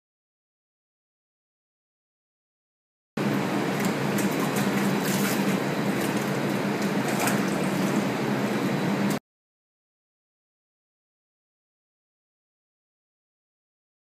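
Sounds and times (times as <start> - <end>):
steady low hum: 3.2 - 9.2
water splashing and sloshing: 3.2 - 9.2.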